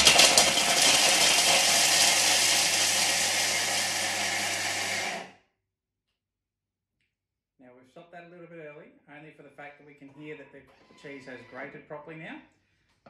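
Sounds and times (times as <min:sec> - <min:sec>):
food processor blades whirring: 0:00.0 - 0:05.3.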